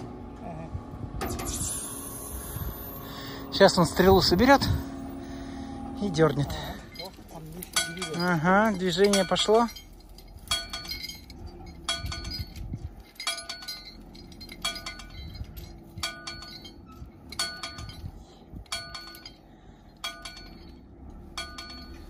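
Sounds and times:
truck engine running under load: 0:00.0 - 0:22.0
metallic bell-like chime: 0:06.1 - 0:18.1, 0:20.0 - 0:22.0.

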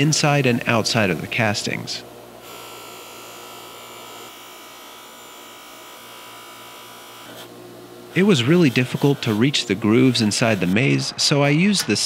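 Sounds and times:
bench grinder buzzing: 0:02.4 - 0:11.2.

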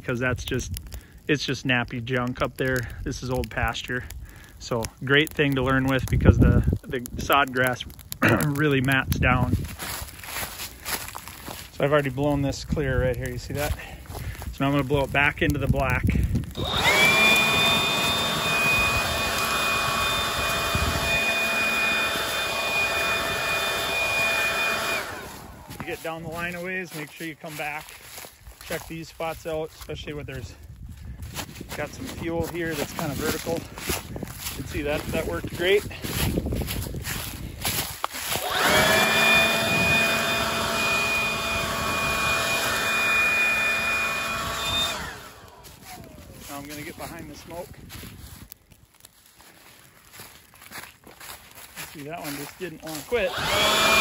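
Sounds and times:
leaf blower running: 0:08.2 - 0:09.0, 0:09.6 - 0:12.6, 0:13.2 - 0:29.8, 0:31.8 - 0:47.8, 0:51.2 - 0:54.0.

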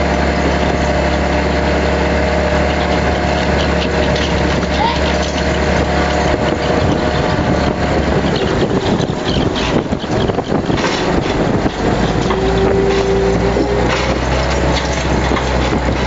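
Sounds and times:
boat engine and machinery humming: 0:00.0 - 0:16.0
wind buffeting microphone: 0:00.0 - 0:16.0.

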